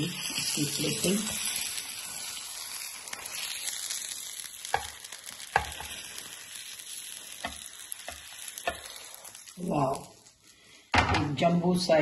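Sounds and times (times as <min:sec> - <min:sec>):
omelette sizzling in pan: 0:00.0 - 0:11.0
spatula pushing along pan: 0:01.0 - 0:09.5
spatula tapping pan: 0:04.6 - 0:06.1, 0:07.3 - 0:09.4.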